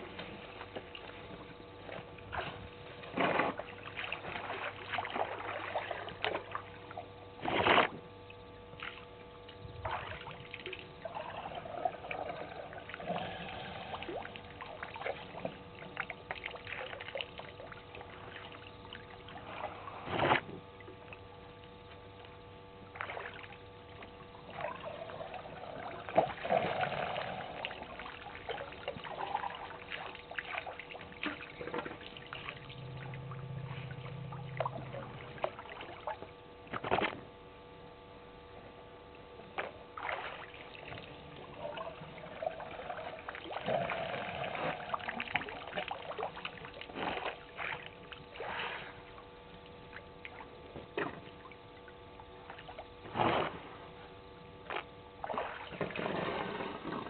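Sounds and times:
faint steady hum: 0.0s - 57.0s
elephants splashing water: 54.7s - 57.0s.

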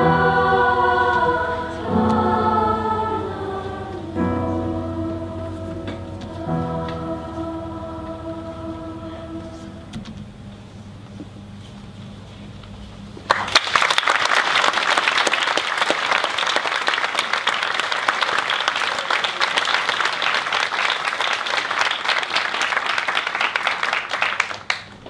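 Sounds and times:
audience applauding: 13.3s - 25.0s.

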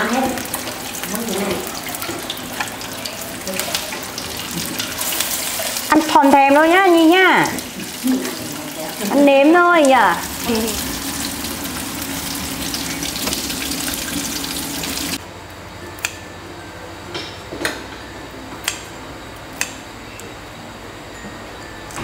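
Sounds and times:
water running from tap: 0.0s - 15.2s.

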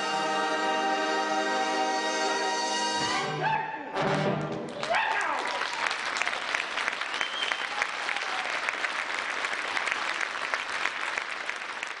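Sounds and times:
audience applauding: 4.0s - 12.0s.

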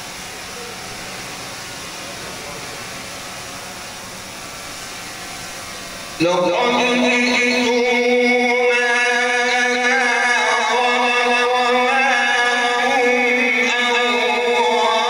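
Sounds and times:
man reciting melodically into microphone: 6.2s - 15.0s.

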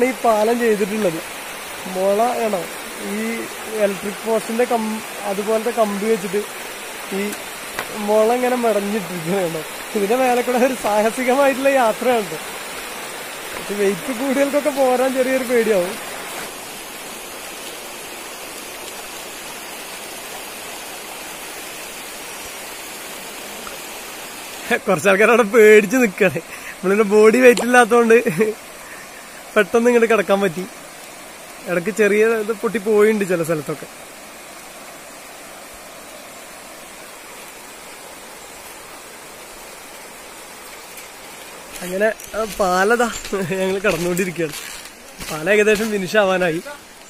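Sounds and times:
river rushing over rocks: 0.0s - 47.0s.

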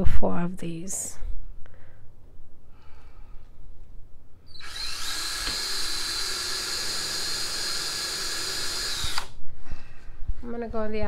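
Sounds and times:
cordless drill whining: 4.5s - 9.4s.

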